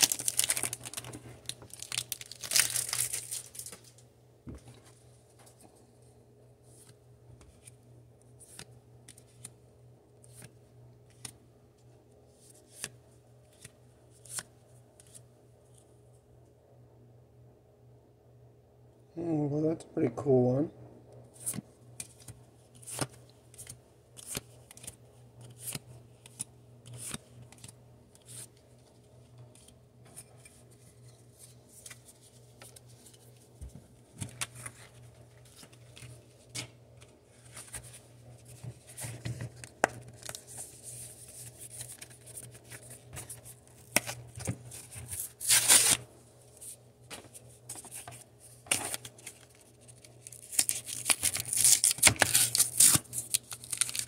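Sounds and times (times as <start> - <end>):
cards being flipped by hand: 10.2 - 10.5, 12.5 - 15.8, 21.4 - 28.6.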